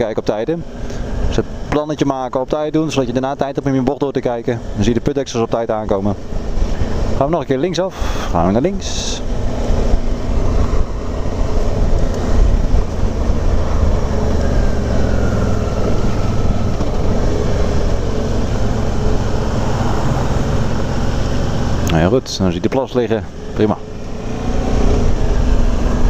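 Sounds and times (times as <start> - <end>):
road noise rushing: 0.0 - 26.0
motorcycle engine running: 8.8 - 22.4.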